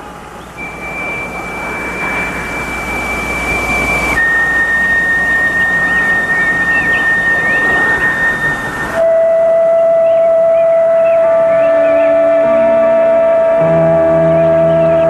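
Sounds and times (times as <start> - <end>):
steady hiss: 0.0 - 12.0
high held note: 0.5 - 15.0.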